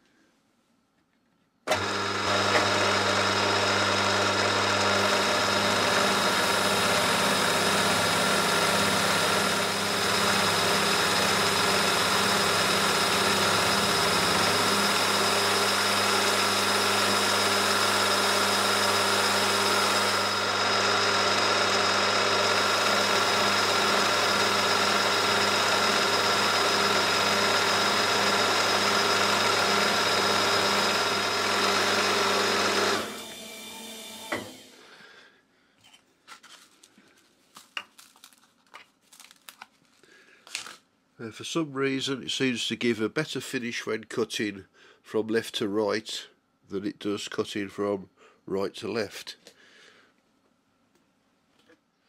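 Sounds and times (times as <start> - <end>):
milling machine cutting metal: 1.7 - 34.7.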